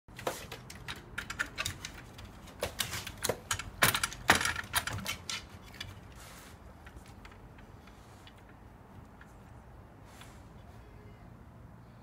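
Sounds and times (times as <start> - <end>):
dog claws scratching wooden door: 0.1 - 9.2
door rattling: 0.4 - 6.0.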